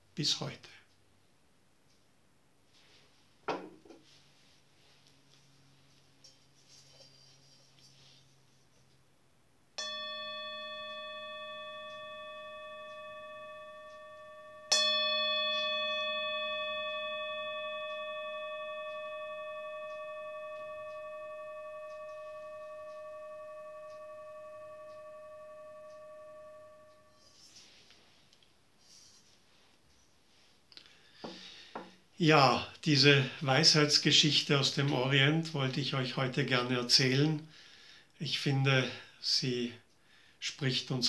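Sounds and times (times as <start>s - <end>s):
metal singing bowl ringing: 9.8s - 27.8s.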